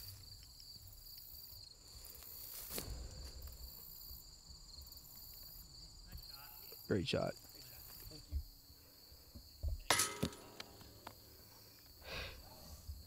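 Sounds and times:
insects chirring: 0.0 - 13.0.

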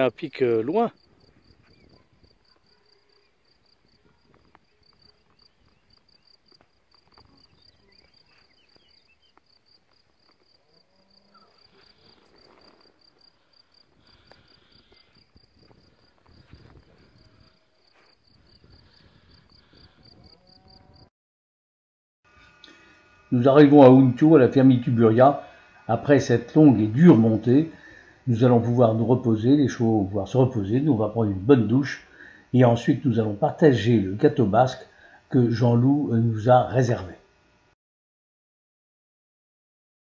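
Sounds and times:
insect chirping: 0.0 - 21.1.

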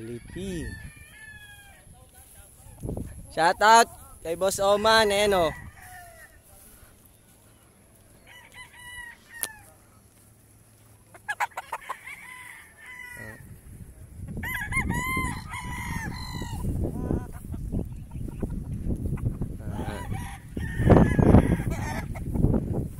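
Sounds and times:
roosters crowing: 0.0 - 1.9, 3.3 - 6.7, 8.0 - 9.8, 11.2 - 13.7, 14.3 - 17.5, 19.0 - 22.9
chickens clucking: 10.7 - 12.0, 16.4 - 22.9.

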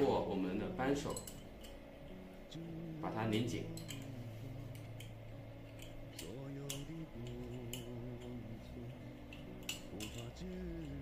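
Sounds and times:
wrench metallic clicks and scrapes: 4.7 - 8.4, 9.2 - 11.0.

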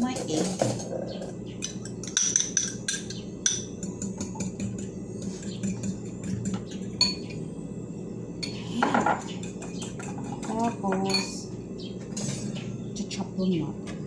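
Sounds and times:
fork clinking in ceramic bowl: 1.6 - 7.3.

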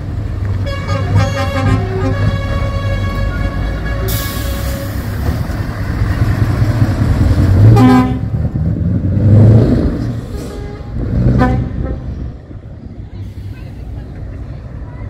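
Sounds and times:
diesel truck engine rumbling: 0.0 - 15.0
truck horn blast: 0.6 - 5.2, 7.6 - 8.4, 10.3 - 12.4.

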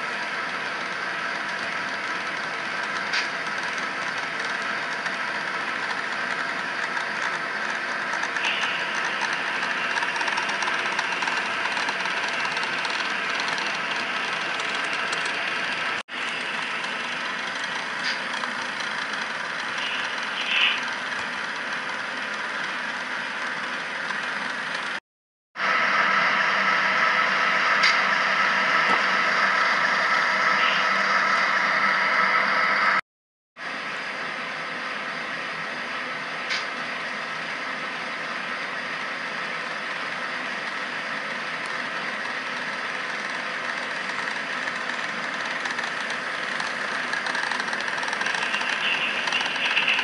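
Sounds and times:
model train whirring on track: 0.0 - 25.0, 25.6 - 33.0, 33.6 - 50.0.

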